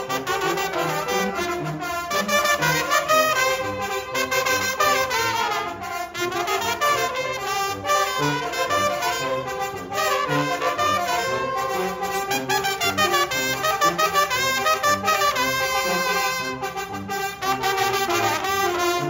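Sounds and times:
brass band playing: 0.0s - 19.0s.

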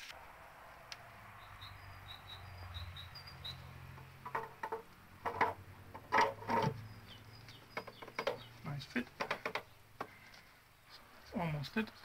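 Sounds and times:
metal cover clunking: 4.2s - 6.8s.

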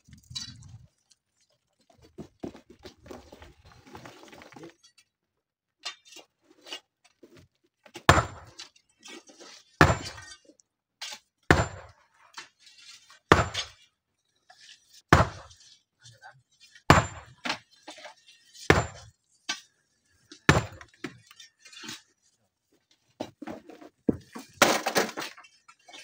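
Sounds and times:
hoes scraping stony rubble: 0.0s - 5.0s, 5.8s - 22.3s, 23.3s - 26.0s
hammer striking boulder: 8.1s - 8.5s, 9.8s - 10.2s, 11.5s - 11.9s, 13.3s - 13.8s, 15.1s - 15.5s, 16.9s - 17.4s, 18.7s - 19.1s, 20.5s - 20.9s.

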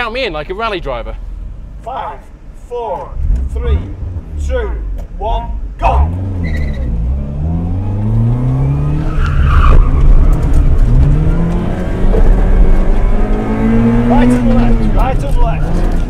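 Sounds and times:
car engine accelerating: 3.2s - 16.0s.

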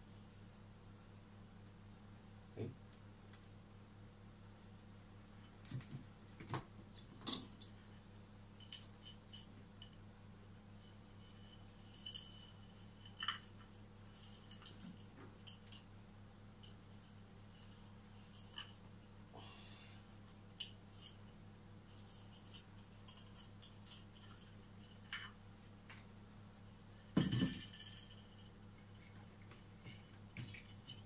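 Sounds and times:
wire scraping ceramic pot: 8.6s - 16.0s, 20.4s - 25.4s.

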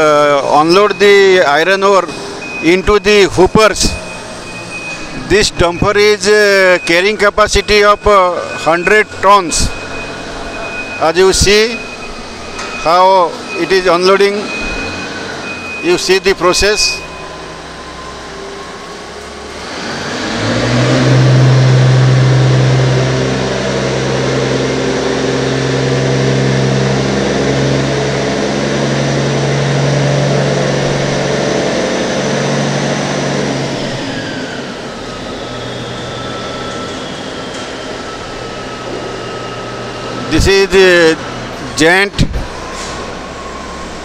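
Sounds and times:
diesel engine revving: 0.0s - 44.0s
hydraulic whine falling in pitch: 19.6s - 41.1s.

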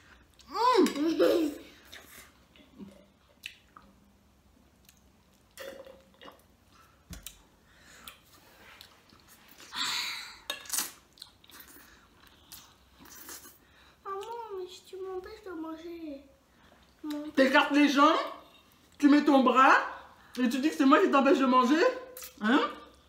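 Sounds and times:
people chewing food: 1.8s - 9.8s, 10.5s - 14.4s.

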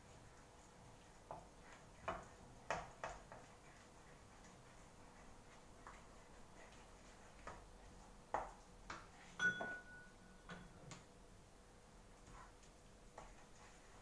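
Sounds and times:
wooden spatula knocking in a wok: 1.2s - 3.6s, 7.4s - 9.8s
kitchenware clink ringing: 9.4s - 10.7s.

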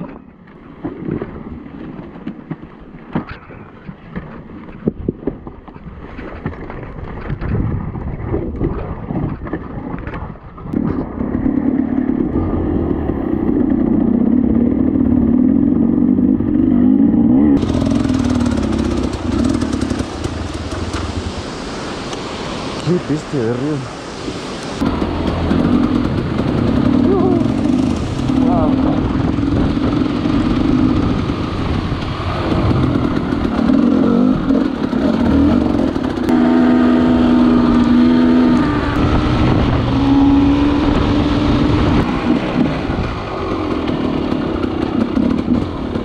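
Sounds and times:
dirt bike engine running: 10.8s - 21.9s, 24.8s - 46.0s
rushing hiss: 17.6s - 24.8s.

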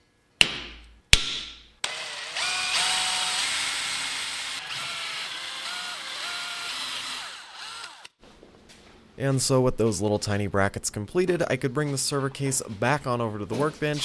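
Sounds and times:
drill boring through metal: 1.8s - 8.1s.

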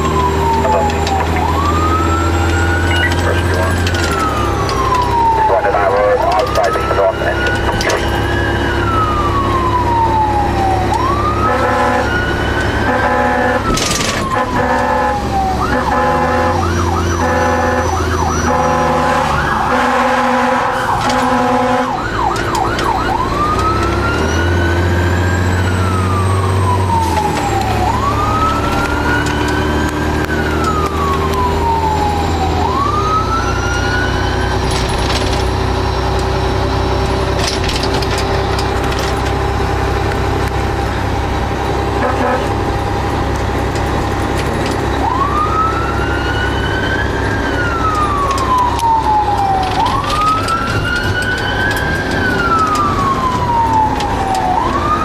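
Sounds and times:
fire engine siren wailing: 0.0s - 55.0s
truck engine running: 0.0s - 55.0s
air horn blasts: 11.5s - 12.1s, 12.9s - 22.0s, 42.0s - 42.6s.

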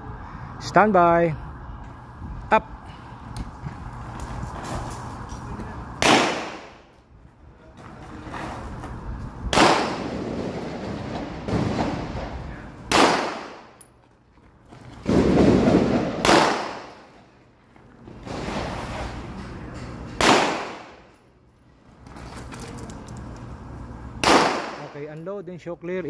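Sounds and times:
pistol shots with echo: 6.0s - 6.8s, 9.5s - 10.4s, 12.9s - 13.8s, 15.1s - 17.1s, 20.2s - 21.1s, 24.2s - 25.0s.

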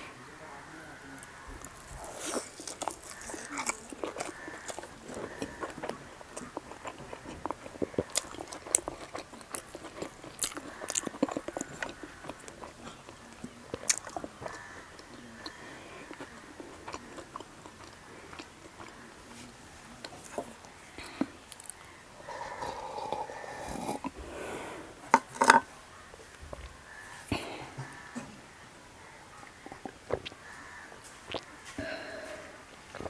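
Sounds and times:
chewing food close-up: 0.3s - 28.2s, 29.0s - 33.0s
wet mouth clicks: 31.3s - 31.5s.

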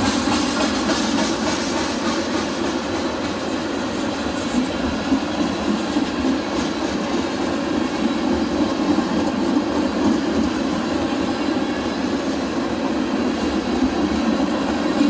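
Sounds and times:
wheels clacking over rail joints: 0.0s - 10.9s
freight train wheels rumbling: 0.0s - 15.0s.

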